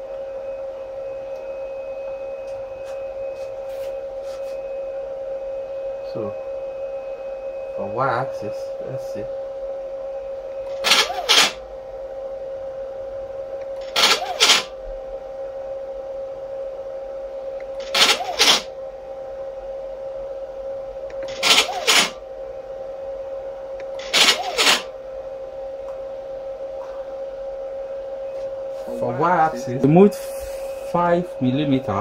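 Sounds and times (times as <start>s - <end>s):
steady high hum: 0.0s - 32.0s
stepper motor double buzz: 10.7s - 11.6s, 13.8s - 14.8s, 17.8s - 18.7s, 21.2s - 22.2s, 23.9s - 24.9s.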